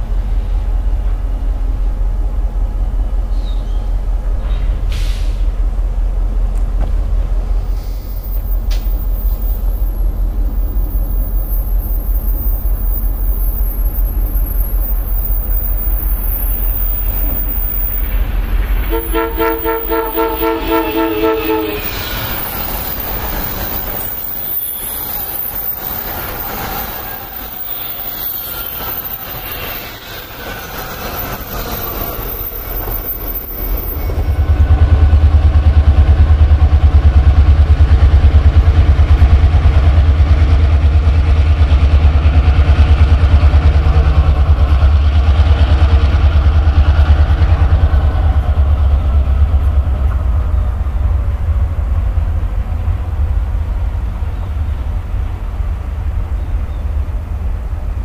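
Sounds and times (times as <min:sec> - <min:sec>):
diesel locomotive rumble: 0:00.0 - 0:58.0
train wheels rushing and squealing: 0:03.3 - 0:05.6, 0:07.5 - 0:51.6
train horn blast: 0:18.8 - 0:22.5.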